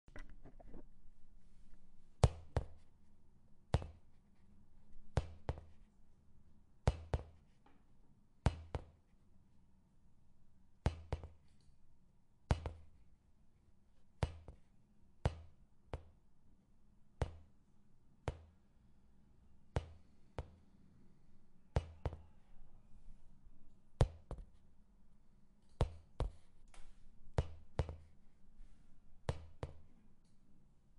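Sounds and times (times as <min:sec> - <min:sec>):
ball bouncing on hard surface: 0:17.2 - 0:17.4, 0:21.8 - 0:22.3, 0:24.0 - 0:24.5, 0:27.4 - 0:28.1.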